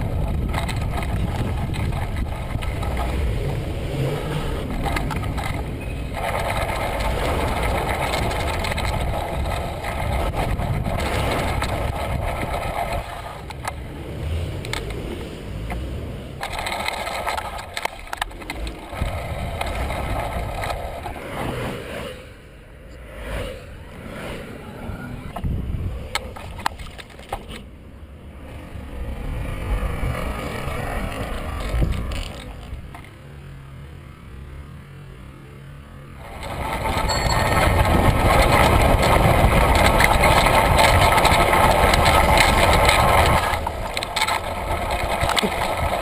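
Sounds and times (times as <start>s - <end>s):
rattling clicks and knocks: 0.0s - 3.2s, 4.6s - 13.8s, 16.4s - 21.1s, 26.1s - 27.6s, 36.3s - 46.0s
bicycle road noise: 0.0s - 46.0s
wind rushing over camera: 0.0s - 46.0s.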